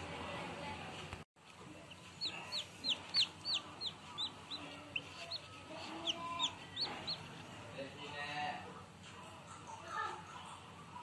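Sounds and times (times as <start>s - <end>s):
chicks peeping: 1.5s - 8.2s.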